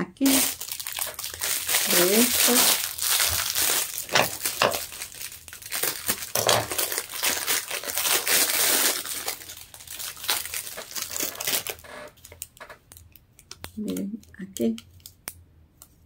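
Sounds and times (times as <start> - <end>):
plastic bag crinkling: 0.2 - 14.0.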